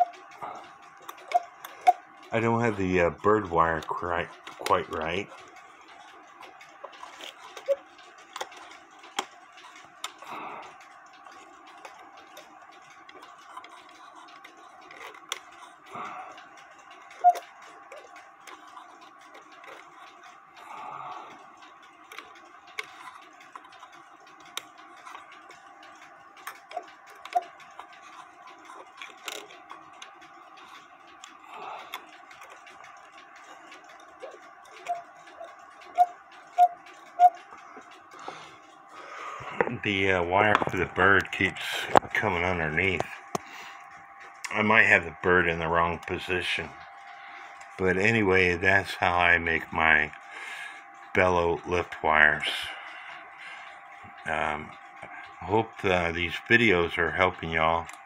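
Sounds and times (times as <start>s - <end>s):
clicks and knocks on clock mechanism: 0.0s - 38.8s
faint steady hum: 0.0s - 58.0s.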